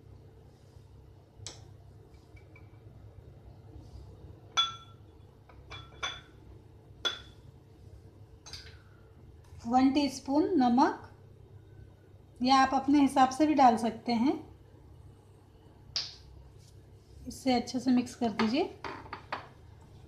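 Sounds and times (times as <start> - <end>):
glass bowls and spoon clinking: 4.5 - 6.4, 7.0 - 7.4.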